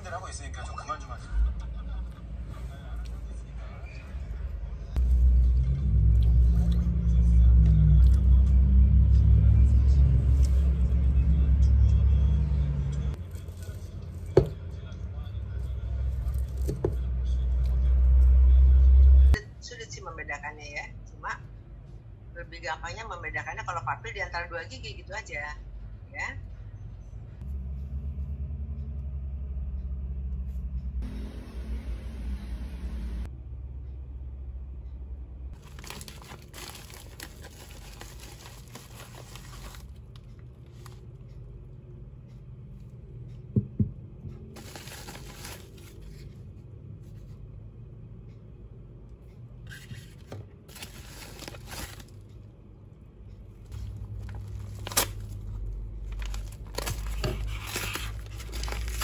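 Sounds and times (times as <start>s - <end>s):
mailers crinkling and rustling: 35.6s - 41.0s, 44.6s - 46.2s, 50.7s - 52.2s, 53.7s - 59.0s.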